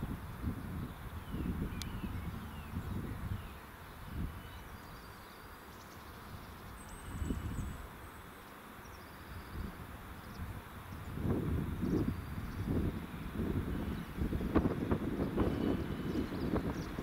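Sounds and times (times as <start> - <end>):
wind gusting on microphone: 0.0 - 5.1, 6.2 - 8.0, 9.3 - 17.0
faint bird chirps: 0.8 - 11.2, 14.8 - 17.0.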